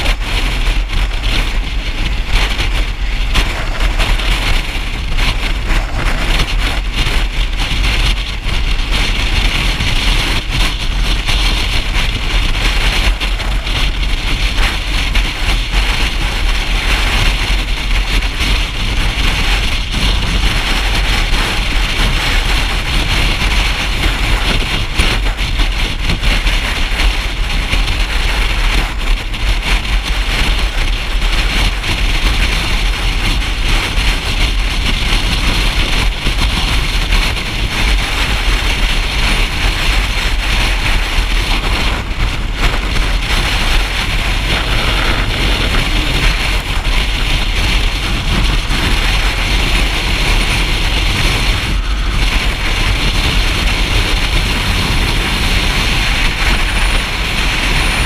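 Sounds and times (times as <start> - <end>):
wind rushing on microphone: 0.0 - 58.0
motorcycle engine: 38.1 - 58.0.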